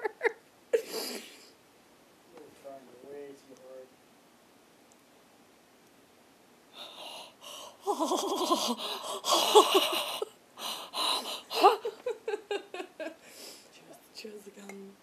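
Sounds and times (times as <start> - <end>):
women laughing hard: 0.0 - 0.4, 7.8 - 10.3, 10.9 - 13.2
gasping breaths: 6.8 - 7.8, 8.6 - 11.8.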